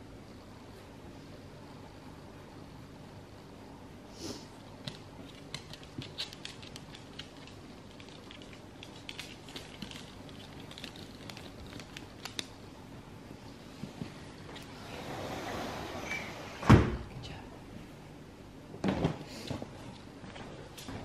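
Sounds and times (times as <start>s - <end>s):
dog claws clicking on hard floor: 4.8s - 12.6s.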